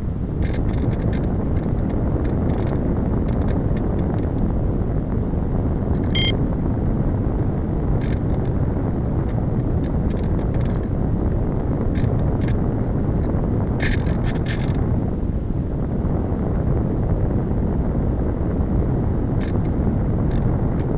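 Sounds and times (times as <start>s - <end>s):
wind rushing over microphone: 0.0s - 20.9s.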